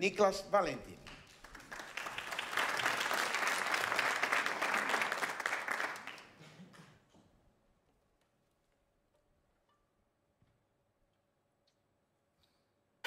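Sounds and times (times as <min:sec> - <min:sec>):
audience applauding: 0:01.1 - 0:06.9.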